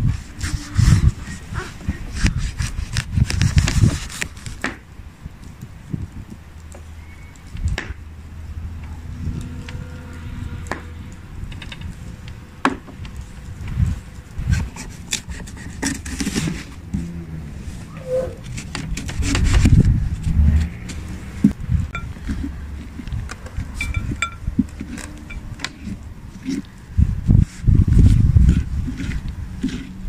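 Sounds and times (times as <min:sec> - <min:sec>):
knife cutting through pumpkin: 0:27.4 - 0:30.0.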